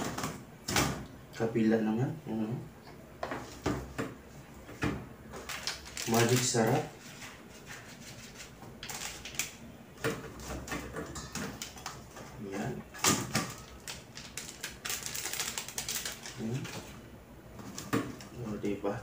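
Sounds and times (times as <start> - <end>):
foil sachet crinkling: 5.4 - 6.9, 7.7 - 9.6, 13.2 - 17.0.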